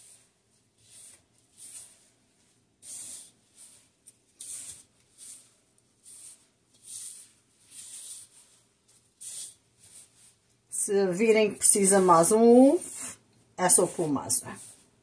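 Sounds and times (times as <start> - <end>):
plastic glove crinkling dough: 0.0 - 15.0.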